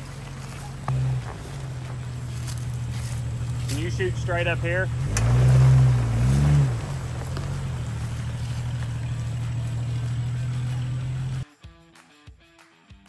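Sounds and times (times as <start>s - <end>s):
vehicle engine revving: 0.0s - 11.4s.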